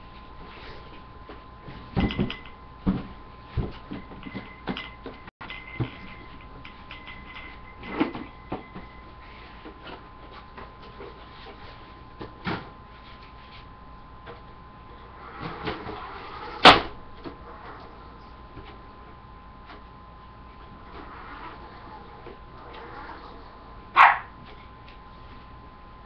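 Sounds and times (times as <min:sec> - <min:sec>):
faint electrical hum: 0:00.0 - 0:26.0
light knocks and thumps: 0:01.7 - 0:05.2.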